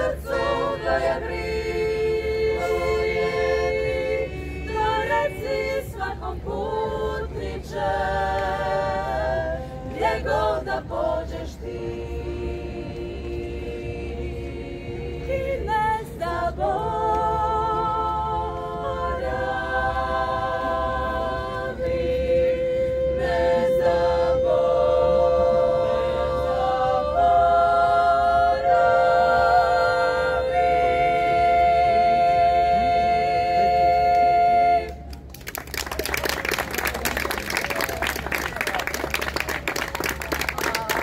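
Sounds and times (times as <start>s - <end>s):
women singing in close harmony: 0.0s - 35.2s
applause: 35.1s - 41.0s.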